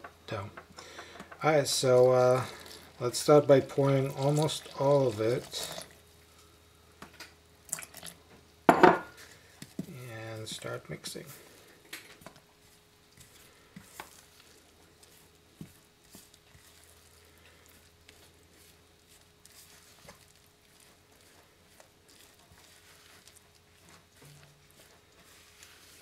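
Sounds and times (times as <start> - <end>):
faint steady hum: 0.0 - 26.0
spoon stirring dough in a bowl: 9.1 - 26.0.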